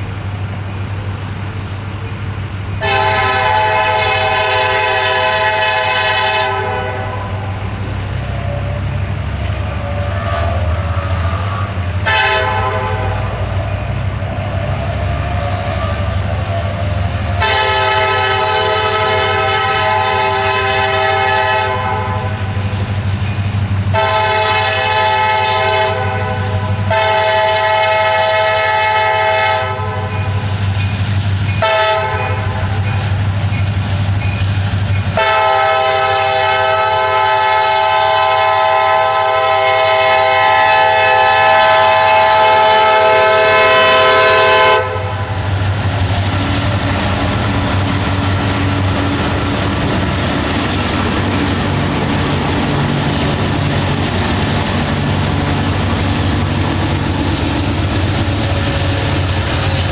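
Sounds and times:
diesel engine low rumble: 0.0s - 27.3s, 42.4s - 59.9s
locomotive horn blasts: 2.8s - 7.6s, 9.8s - 13.5s, 17.4s - 22.6s, 23.9s - 30.4s, 31.6s - 33.0s, 35.2s - 45.4s.

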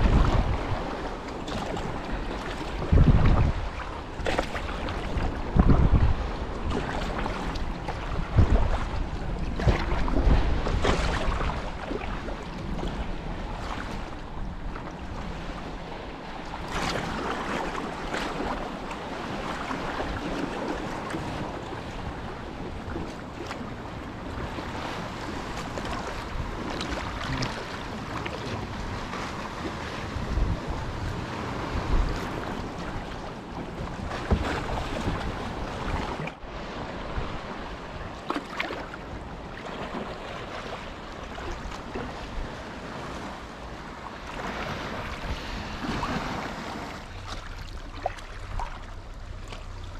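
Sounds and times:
wind buffeting microphone: 0.0s - 39.4s
water lapping against hull: 0.0s - 49.9s
paddle strokes splashing: 16.0s - 37.3s, 44.3s - 49.9s.

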